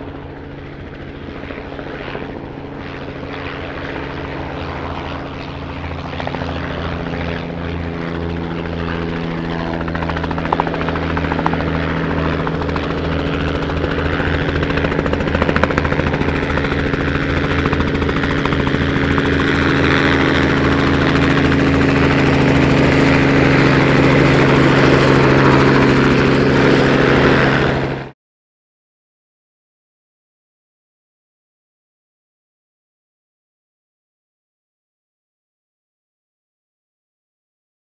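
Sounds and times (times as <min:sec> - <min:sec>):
helicopter engine: 0:00.0 - 0:28.2
helicopter rotor beating: 0:00.0 - 0:28.2.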